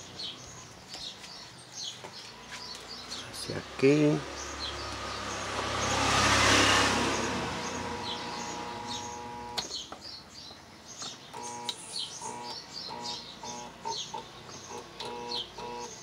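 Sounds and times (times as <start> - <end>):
birds chirping: 0.0 - 16.0
electric pump motor humming: 7.0 - 9.7, 11.4 - 13.9, 14.7 - 16.0.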